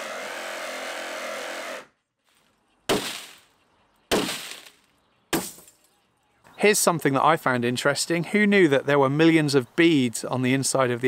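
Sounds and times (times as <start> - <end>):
cordless power tool running: 0.0 - 1.9
sharp loud crashes: 2.9 - 3.5, 4.1 - 5.7.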